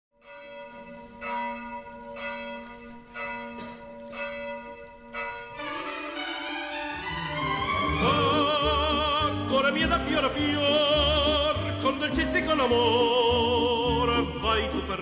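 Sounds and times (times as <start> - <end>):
bell tolling: 0.2 - 8.4
music: 5.4 - 15.0.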